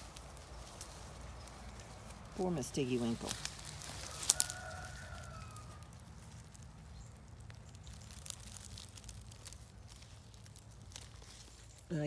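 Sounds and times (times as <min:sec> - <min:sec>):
rustling dry leaves and twigs: 0:00.0 - 0:12.0.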